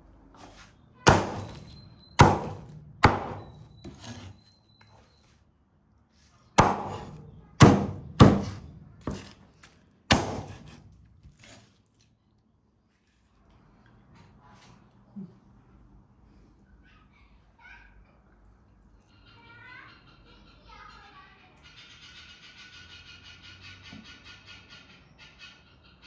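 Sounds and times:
cleaver chopping on wooden board: 1.1 - 4.3, 6.6 - 9.4, 10.1 - 11.6.

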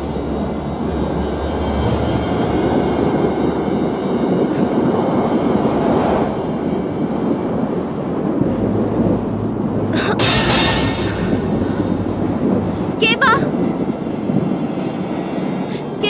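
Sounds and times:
deep rumble: 0.0 - 16.0
rushing wind: 0.0 - 16.0.

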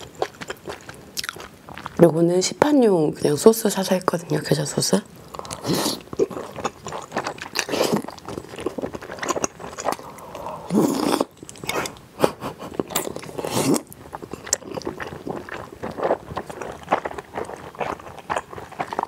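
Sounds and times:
moist chewing and crunching: 0.0 - 2.1, 5.2 - 19.0
noodles slurping: 5.2 - 19.0.

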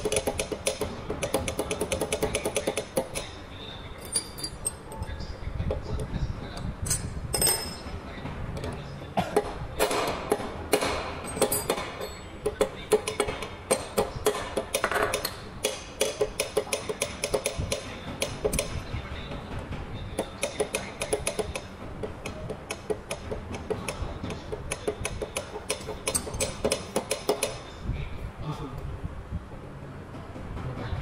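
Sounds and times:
metal tools clinking: 4.0 - 5.2, 6.8 - 7.9, 11.2 - 12.3.

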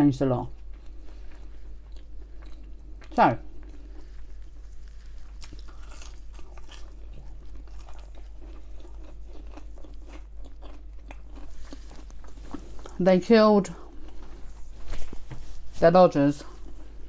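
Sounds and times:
chewing crisp pastry: 0.4 - 14.8, 16.4 - 17.0.

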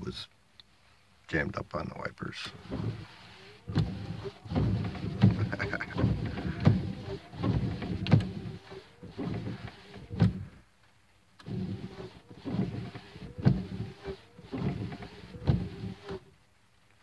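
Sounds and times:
windshield wiper motor whining: 2.4 - 10.6, 11.4 - 16.3
wiper arm knocking: 2.6 - 10.5, 11.4 - 16.2.

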